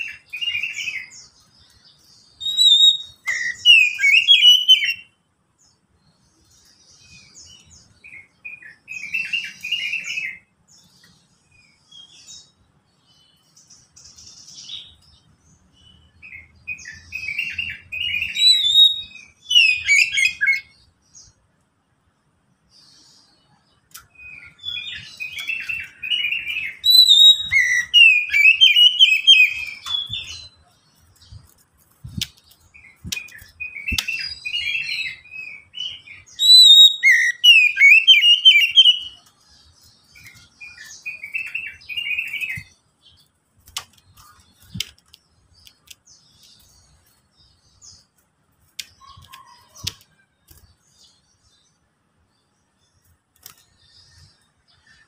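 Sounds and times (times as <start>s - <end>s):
bird singing whistled phrases and trills: 0.0s - 5.2s, 6.9s - 11.0s, 15.8s - 20.9s, 22.8s - 30.7s, 32.1s - 43.2s.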